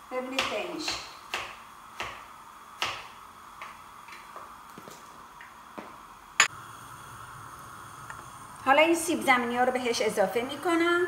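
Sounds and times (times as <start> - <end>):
knife chopping on cutting board: 0.4 - 3.8.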